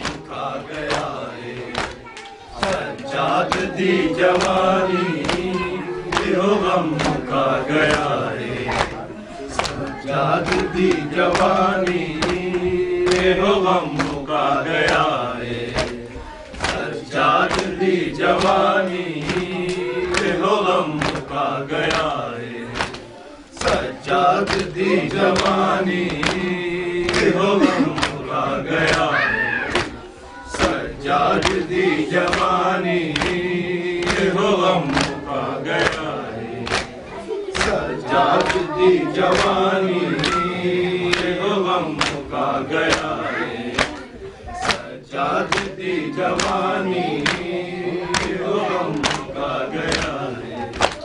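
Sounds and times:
voices chanting a lament: 0.0s - 51.0s
chest beating slaps: 15.8s - 17.7s, 24.5s - 24.7s.

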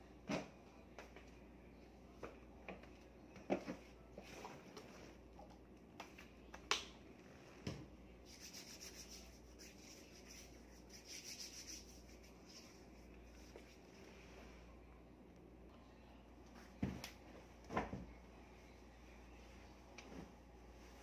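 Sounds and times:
hands rubbing together: 8.2s - 13.8s.

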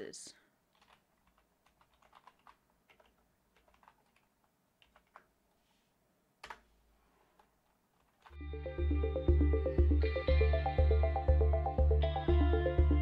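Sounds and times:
faint keyboard typing: 0.7s - 5.6s, 6.4s - 8.4s.

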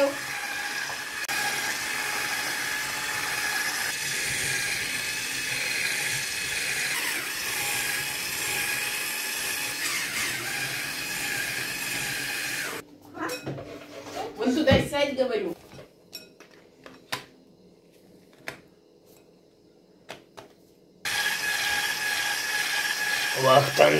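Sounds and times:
electric hand mixer whining: 0.0s - 12.8s, 21.1s - 23.9s.

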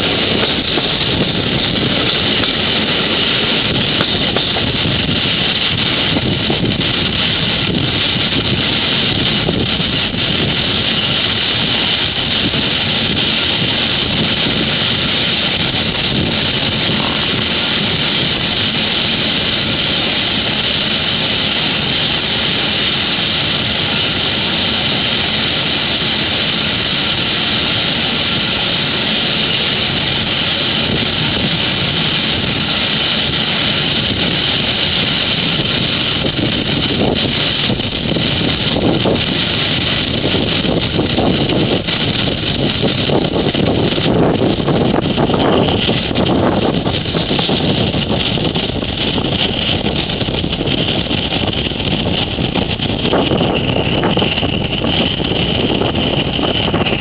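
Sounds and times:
vehicle rushing noise: 0.0s - 57.0s.

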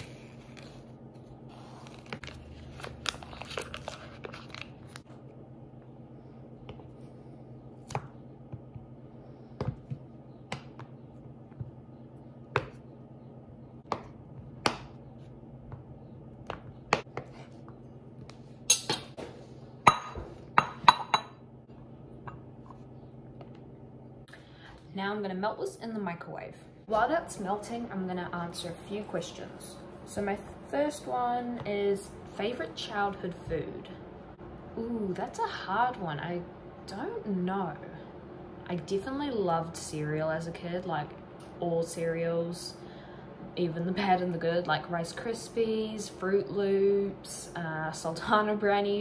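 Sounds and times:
paper wrapper rustling: 1.8s - 5.1s.

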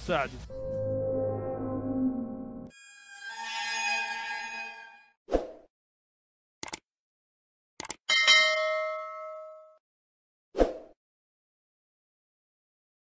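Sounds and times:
sharp clicks: 6.6s - 6.8s, 7.8s - 8.0s
bell-like ding: 8.1s - 9.8s.

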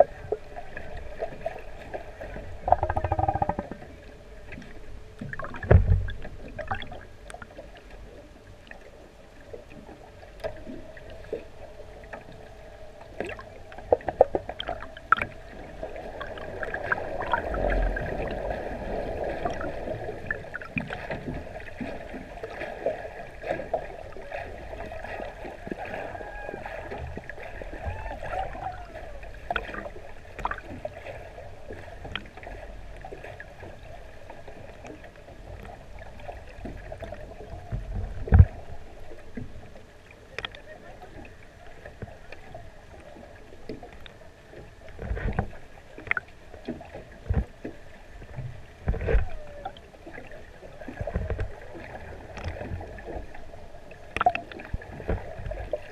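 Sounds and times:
underwater water noise: 0.0s - 55.9s
low underwater thumps: 2.4s - 4.1s, 5.2s - 6.9s
faint wavering whale calls: 2.4s - 5.2s, 24.1s - 29.7s, 49.1s - 50.5s.

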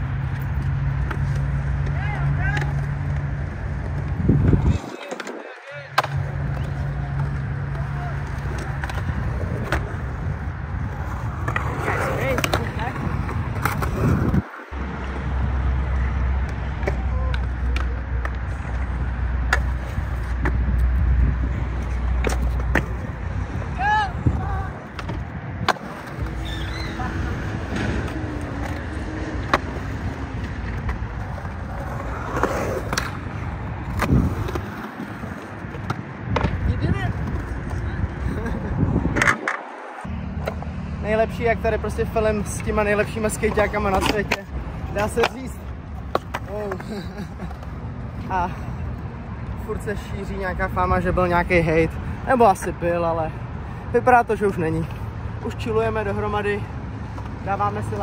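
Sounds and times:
hard wheels rolling on concrete: 0.0s - 58.0s
skateboard deck clacks: 0.3s - 10.0s, 27.7s - 37.8s, 43.4s - 47.7s.

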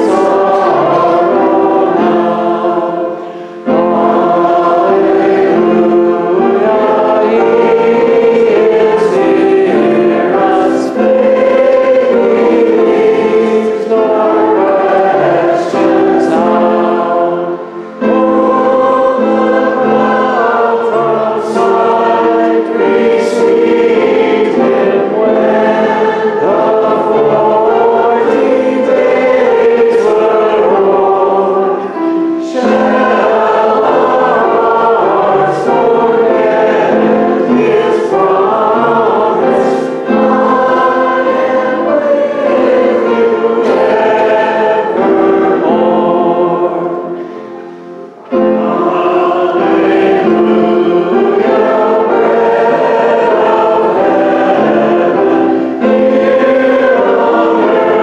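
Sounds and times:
congregation singing a hymn: 0.0s - 58.0s
instrumental accompaniment: 0.0s - 58.0s.

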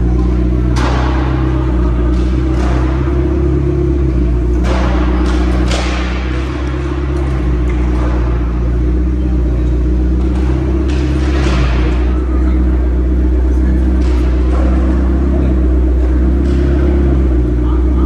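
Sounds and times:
car engine idling: 0.0s - 18.0s
sharp knocks echoing: 0.0s - 18.0s.

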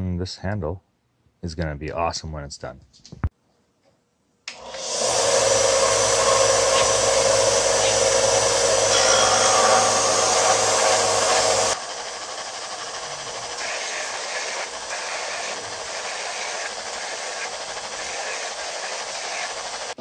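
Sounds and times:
electric sander running: 4.5s - 20.0s.

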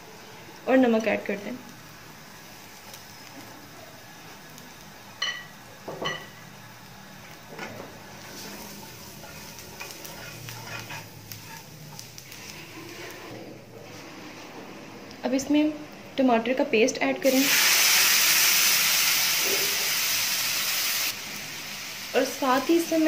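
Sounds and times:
oil sizzling: 0.0s - 14.5s, 17.2s - 23.0s
spoon stirring in a pan: 8.1s - 14.0s.

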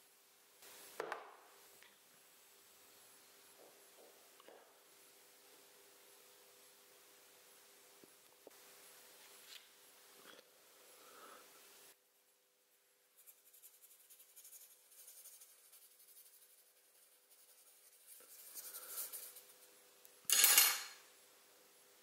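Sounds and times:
coin scraping on paper: 18.5s - 19.4s.

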